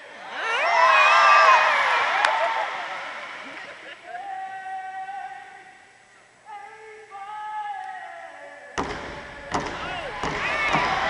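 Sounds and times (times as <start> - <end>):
loud noise: 8.8 - 11.0
sudden loud thump: 8.8 - 11.0.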